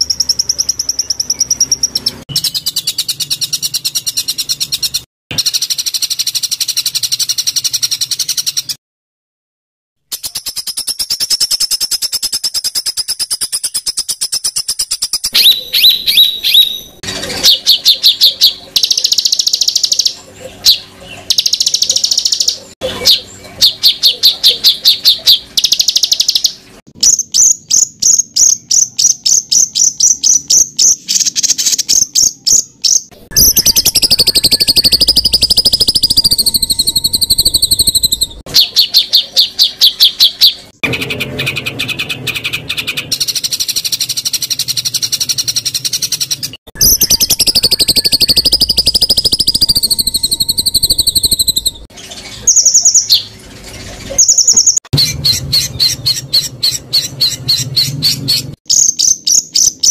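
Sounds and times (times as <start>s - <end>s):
buzzy warbling birdsong: 0.0s - 8.8s, 10.0s - 59.9s
rapid high bird notes: 10.1s - 53.4s.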